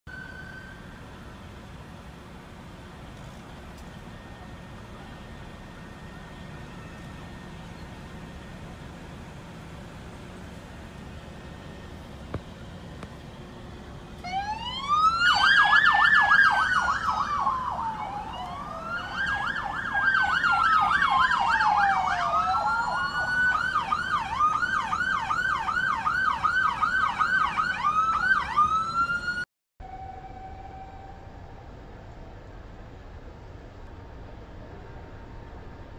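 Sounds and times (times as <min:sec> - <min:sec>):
police siren yelp: 0:00.1 - 0:02.9, 0:14.2 - 0:31.7
police siren wail: 0:00.1 - 0:32.0
low traffic noise: 0:00.1 - 0:35.9.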